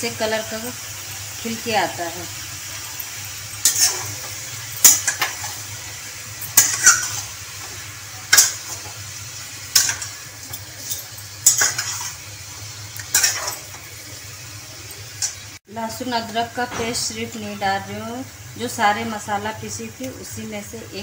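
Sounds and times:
chicken sizzling in oil: 0:00.0 - 0:21.0
metal fork scraping a pan: 0:03.6 - 0:05.7, 0:06.4 - 0:07.4, 0:08.3 - 0:08.9, 0:09.7 - 0:12.2, 0:13.0 - 0:13.8.

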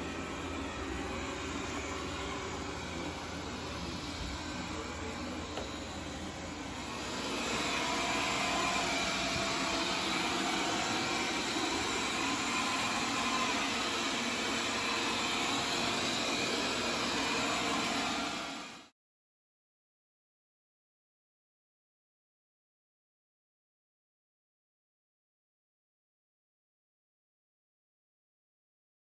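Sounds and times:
robot vacuum whirring: 0:00.0 - 0:18.9.

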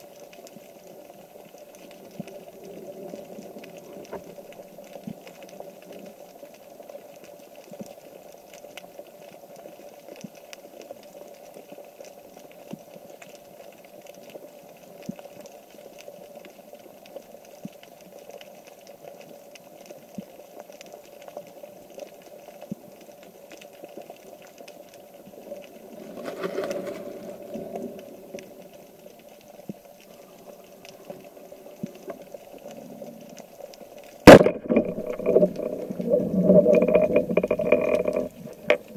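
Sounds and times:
underwater rush: 0:00.0 - 0:06.8, 0:24.1 - 0:38.9
faint underwater hum: 0:00.0 - 0:07.8, 0:21.4 - 0:38.9
small underwater clicks and crackles: 0:00.0 - 0:38.9.

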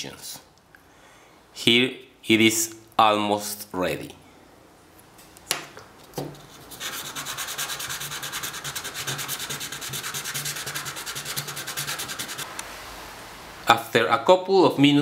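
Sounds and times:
piston rubbed on sandpaper: 0:06.5 - 0:12.4.

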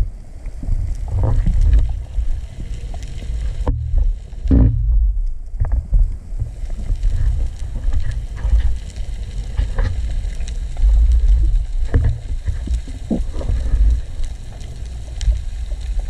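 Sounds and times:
underwater water rumble: 0:00.0 - 0:16.0.

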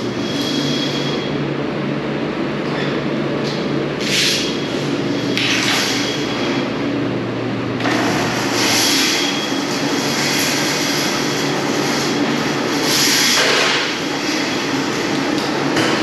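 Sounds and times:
machinery humming: 0:00.0 - 0:16.0.

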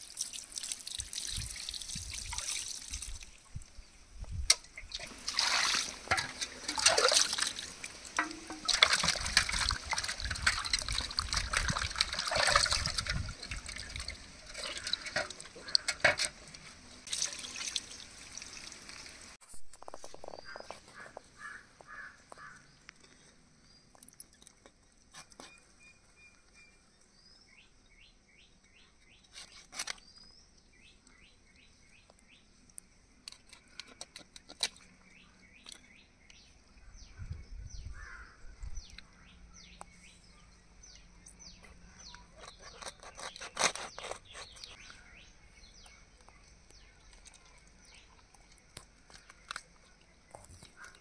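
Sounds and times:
small birds chirping: 0:20.0 - 0:51.0
blade cutting through skin: 0:42.4 - 0:44.8.

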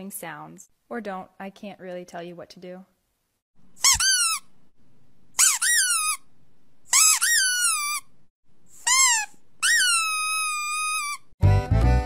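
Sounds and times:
high-pitched squeaky whining cries: 0:06.9 - 0:08.1, 0:08.8 - 0:11.3.

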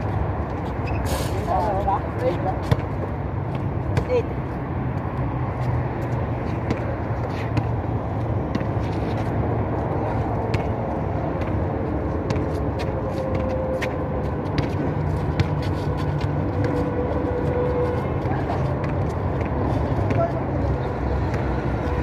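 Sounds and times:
basketball bouncing on concrete: 0:02.4 - 0:04.3, 0:06.0 - 0:09.0, 0:10.4 - 0:16.8, 0:18.2 - 0:20.4.

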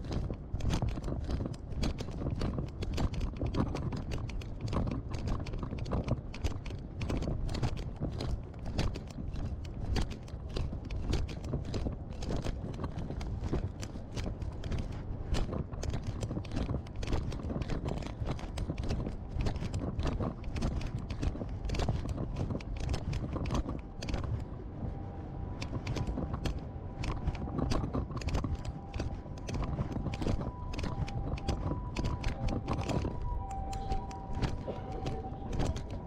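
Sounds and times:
low camera handling rumble: 0:00.0 - 0:24.5, 0:25.6 - 0:36.0
faint two-note siren: 0:28.7 - 0:36.0.

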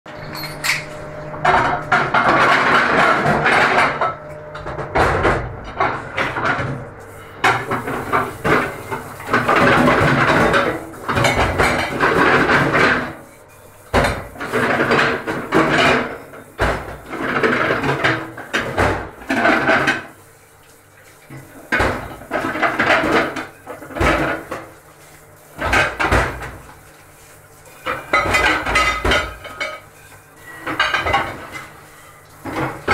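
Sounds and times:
spray tap water running into sink: 0:06.2 - 0:32.9
ceramic plates clattering: 0:07.5 - 0:13.2, 0:14.0 - 0:20.1, 0:27.8 - 0:31.8.

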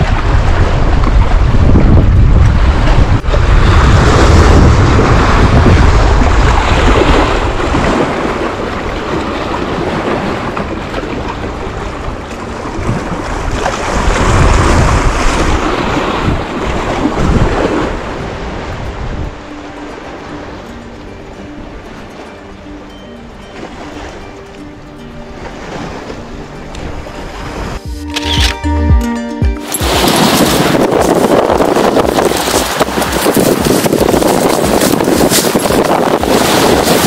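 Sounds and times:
wind buffeting microphone: 0:00.0 - 0:19.5, 0:29.8 - 0:37.0
waves washing: 0:00.0 - 0:37.0.

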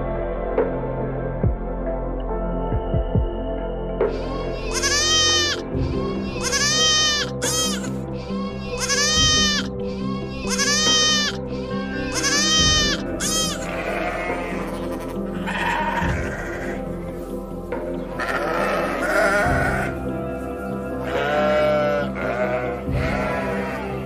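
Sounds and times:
background music: 0:00.0 - 0:24.0
goats bleating: 0:04.7 - 0:05.6, 0:06.4 - 0:08.0, 0:08.7 - 0:09.7, 0:10.4 - 0:16.8, 0:18.1 - 0:20.0, 0:21.0 - 0:24.0.

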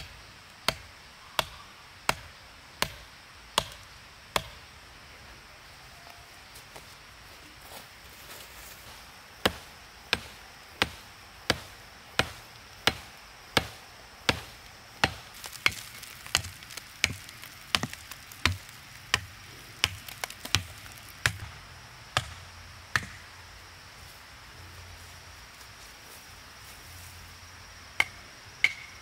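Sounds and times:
blade chopping blows: 0:08.8 - 0:21.5.

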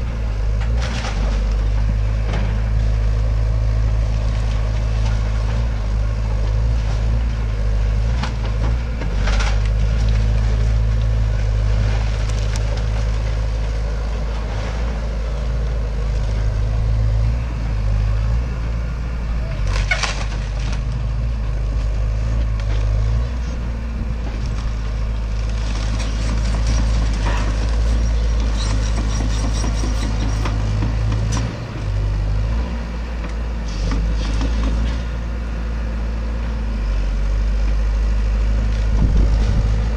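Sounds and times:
excavator diesel engine: 0:00.0 - 0:39.9
breaking timber cracks and crashes: 0:11.6 - 0:13.8, 0:19.7 - 0:21.1, 0:24.3 - 0:28.8.

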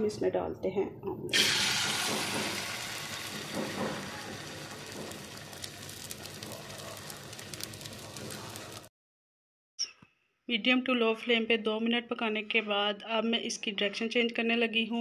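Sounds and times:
egg batter sizzling in oil: 0:01.3 - 0:08.9.

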